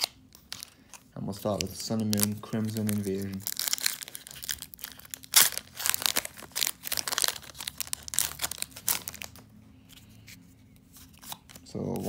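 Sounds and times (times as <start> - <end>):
foil wrapper tearing and crinkling: 0.0 - 9.4.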